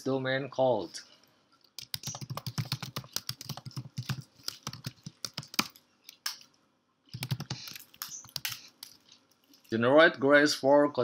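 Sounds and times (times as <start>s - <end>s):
typing on a computer keyboard: 1.8s - 6.4s, 7.1s - 9.2s.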